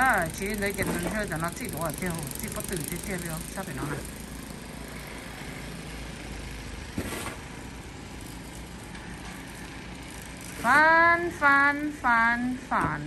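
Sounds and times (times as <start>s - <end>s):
distant snowblower engine running: 0.0s - 13.0s
snow shovel scraping packed snow: 6.9s - 7.6s, 10.4s - 11.2s.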